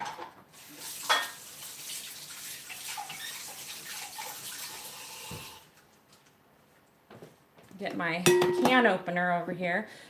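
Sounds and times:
water running from tap: 0.5s - 5.7s.

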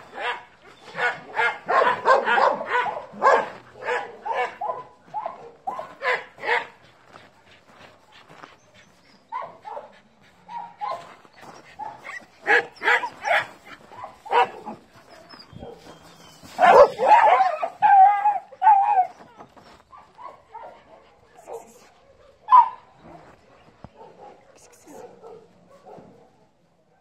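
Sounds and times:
dogs barking: 0.0s - 7.3s, 9.3s - 19.2s, 19.9s - 27.0s.

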